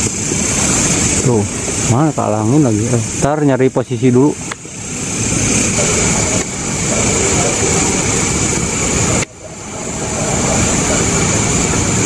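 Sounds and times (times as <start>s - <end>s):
high insect trill: 0.0s - 12.0s
loud low rumble: 4.7s - 12.0s.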